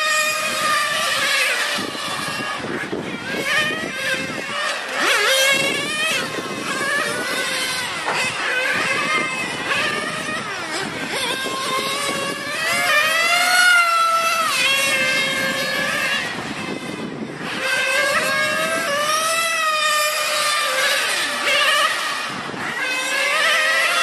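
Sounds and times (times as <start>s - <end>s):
rc car nitro engine revving: 0.0s - 24.0s.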